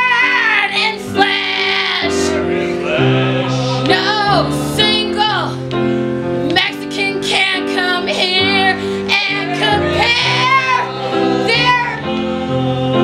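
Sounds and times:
sustained accompaniment chords: 0.6s - 6.6s
woman singing with vibrato: 3.6s - 5.5s, 7.9s - 12.1s.

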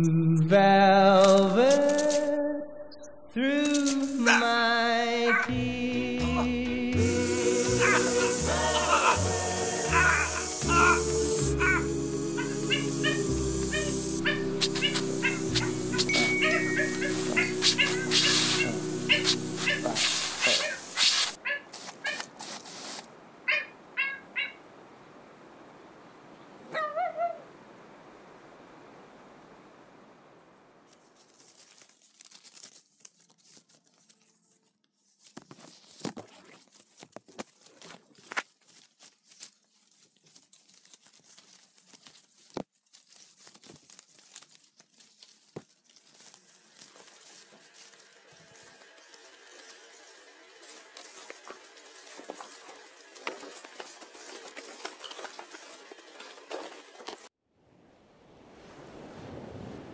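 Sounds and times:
garden hose spraying water: 3.6s - 4.4s, 7.0s - 23.2s, 38.5s - 57.4s
rustling crackle: 7.1s - 23.2s, 30.8s - 57.3s
small dog yapping: 12.4s - 22.3s, 26.7s - 27.4s.

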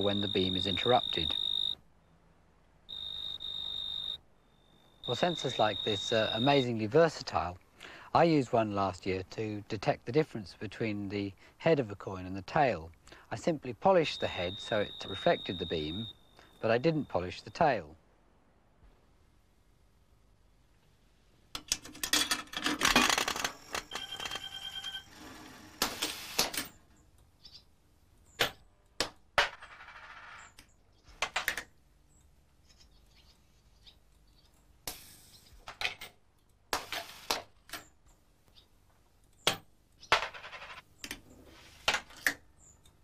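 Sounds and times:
short beep: 0.0s - 1.8s, 2.9s - 6.6s, 14.1s - 17.2s
coin mechanism clicks and knocks: 21.6s - 25.1s.

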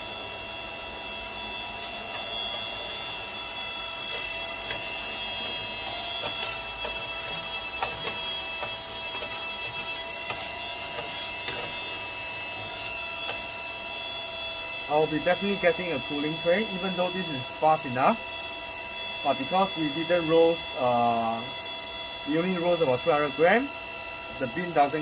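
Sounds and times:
coffee roaster motor and fan whine: 0.0s - 25.0s.

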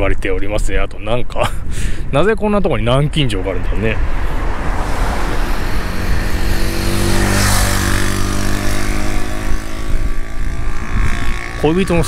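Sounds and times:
car passing: 3.0s - 12.0s.

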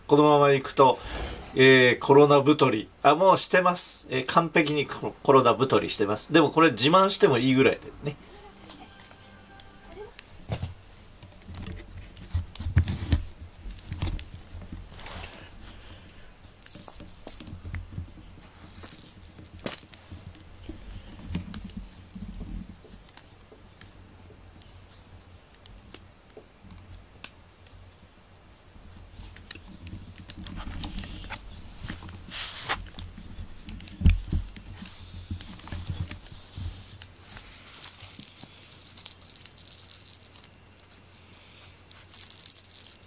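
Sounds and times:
small metal bell jingling: 16.5s - 20.3s, 37.7s - 43.0s
plastic bag rustling: 37.2s - 41.2s.

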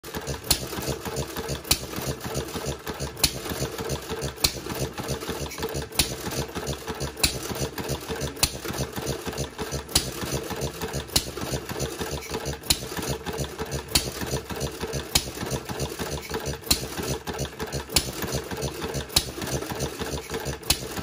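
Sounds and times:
engine mechanical clatter: 0.0s - 21.0s
engine firing pops: 7.2s - 7.4s, 9.9s - 10.2s.

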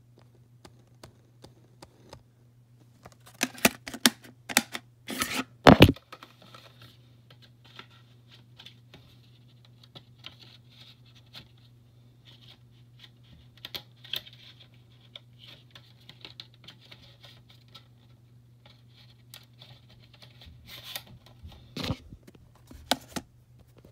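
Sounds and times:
steady low hum: 20.5s - 23.9s.

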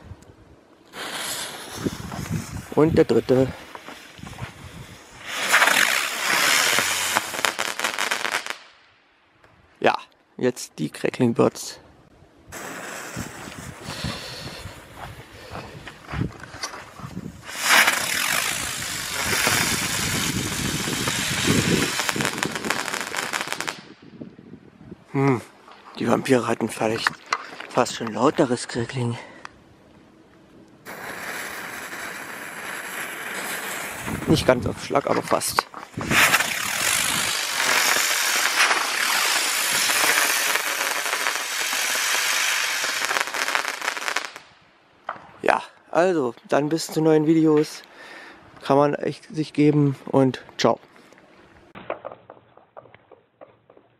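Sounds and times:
firework crackling: 0.9s - 8.9s, 12.5s - 15.0s, 17.3s - 24.0s, 30.8s - 44.5s
firework rushing hiss: 0.9s - 8.9s, 12.5s - 15.0s, 17.3s - 24.0s, 30.8s - 44.5s.

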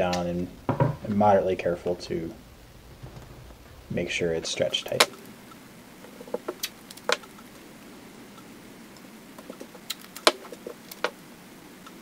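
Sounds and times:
tape and film clicks and crinkles: 4.8s - 7.6s, 8.3s - 11.2s.

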